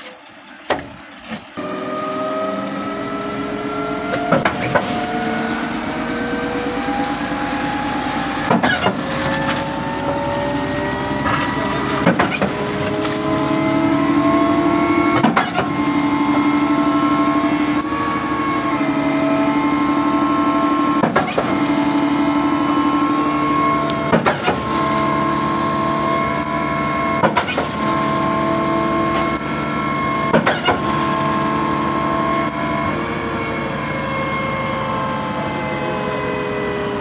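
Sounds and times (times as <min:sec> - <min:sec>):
pump clunk: 0:00.0 - 0:01.6, 0:04.0 - 0:14.3, 0:14.9 - 0:16.6, 0:21.0 - 0:29.6, 0:30.3 - 0:31.6
concrete pump engine drone: 0:00.0 - 0:37.0.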